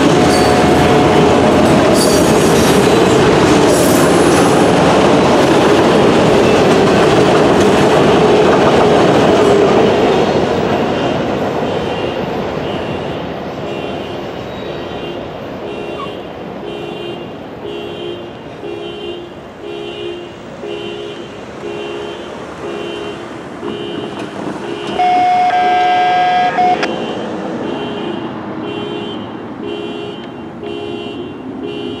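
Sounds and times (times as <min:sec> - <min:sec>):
railroad crossing bell ringing: 0:00.0 - 0:04.6, 0:24.0 - 0:28.2
vehicle horn: 0:00.3 - 0:01.6, 0:11.0 - 0:32.0.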